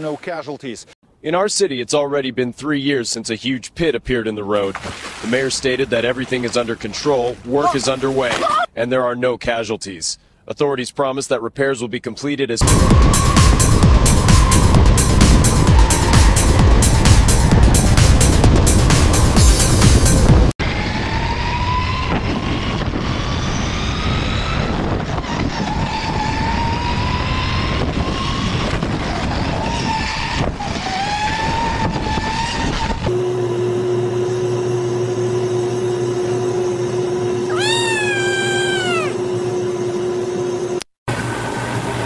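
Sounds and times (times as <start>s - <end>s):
go-kart engine accelerating: 20.7s - 33.2s
kitten meowing: 37.5s - 39.2s.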